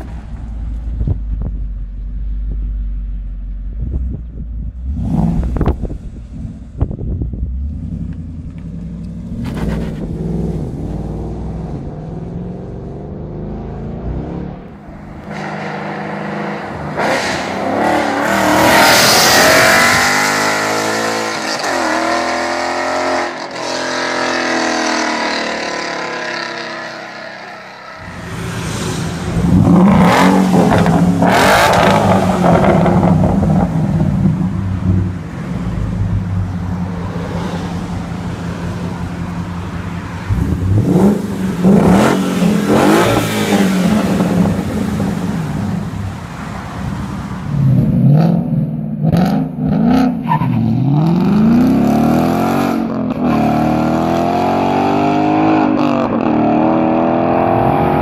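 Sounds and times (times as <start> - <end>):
car engine exhaust revving: 3.7 - 58.0.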